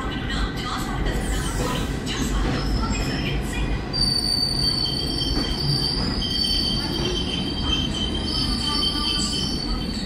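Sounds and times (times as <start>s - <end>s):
train wheels squealing: 3.9s - 10.0s.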